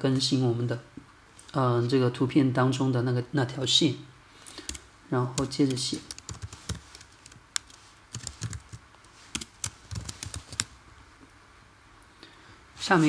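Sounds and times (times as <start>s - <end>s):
keyboard typing clicks: 5.4s - 8.8s, 9.4s - 10.7s.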